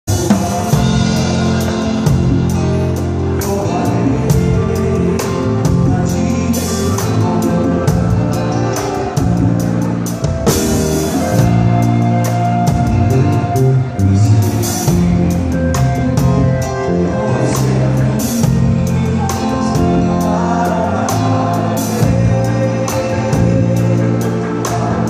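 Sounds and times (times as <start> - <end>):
drum and cymbal hits: 0.1 - 16.9
sustained bass notes: 0.1 - 25.0.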